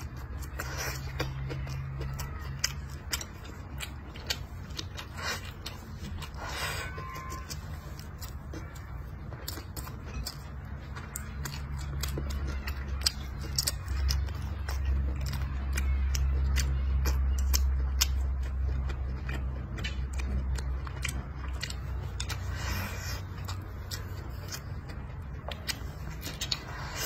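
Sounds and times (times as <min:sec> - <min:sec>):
man chewing and smacking: 0:00.0 - 0:27.0
steady low hum: 0:00.0 - 0:27.0.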